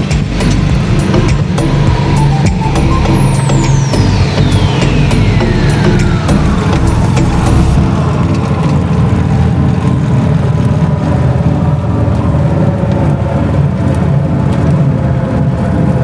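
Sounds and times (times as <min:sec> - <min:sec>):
propeller plane engine drone: 0:00.0 - 0:16.0.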